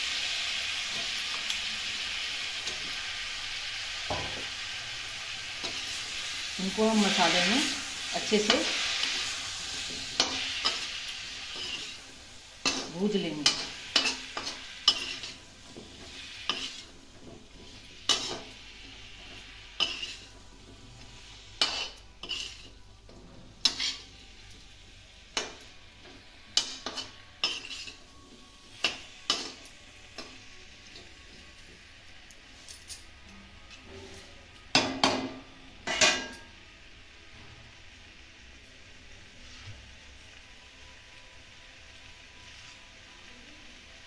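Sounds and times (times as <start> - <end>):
faint frying sizzle: 0.0 - 44.0
metal spoon scraping a pan: 5.5 - 7.5, 8.1 - 20.4, 21.2 - 22.8, 23.6 - 24.2, 26.6 - 30.3.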